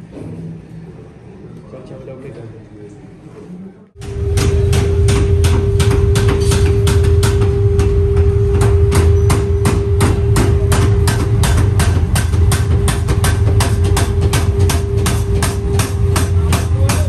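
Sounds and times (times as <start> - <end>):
loud steady machine hum: 4.0 - 17.0
machinery striking metal: 4.0 - 17.0.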